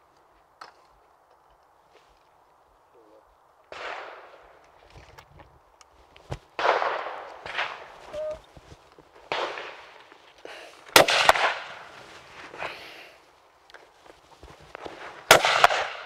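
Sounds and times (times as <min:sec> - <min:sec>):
faint echoing shotgun bangs: 0:03.7 - 0:04.6, 0:06.6 - 0:08.0, 0:09.3 - 0:10.1, 0:10.9 - 0:11.9, 0:15.3 - 0:16.0
shotgun shots: 0:06.6 - 0:08.0, 0:09.3 - 0:09.9, 0:10.9 - 0:11.9, 0:15.3 - 0:16.0.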